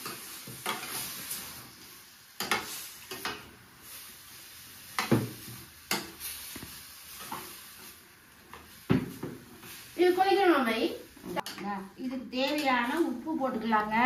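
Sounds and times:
utensils knocking on cooking pan: 2.4s - 3.5s, 5.0s - 6.2s.

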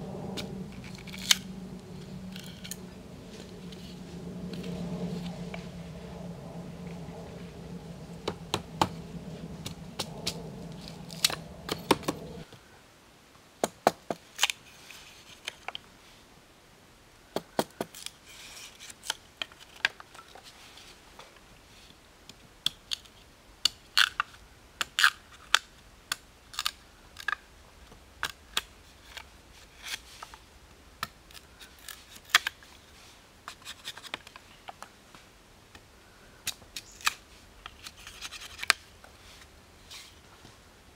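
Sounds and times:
steady low hum: 0.0s - 12.5s.

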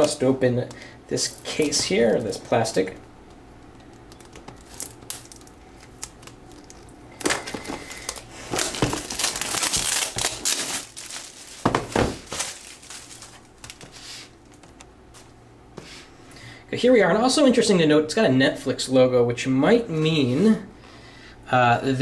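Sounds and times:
plastic shrink-wrap crinkling: 1.2s - 15.4s.

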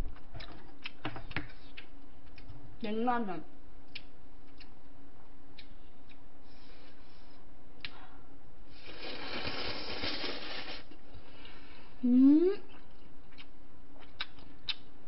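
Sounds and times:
noodles slurped: 8.8s - 11.0s.

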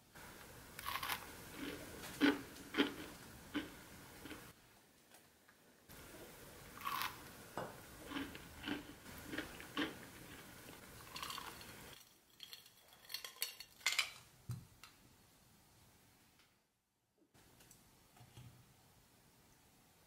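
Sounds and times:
ice clinking in a glass: 11.1s - 11.7s.

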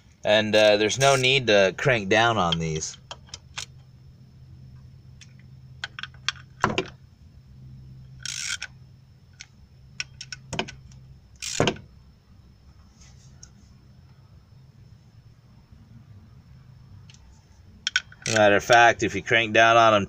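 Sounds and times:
ratchet wrench clicking: 8.2s - 8.7s, 11.4s - 11.8s, 17.9s - 18.9s.

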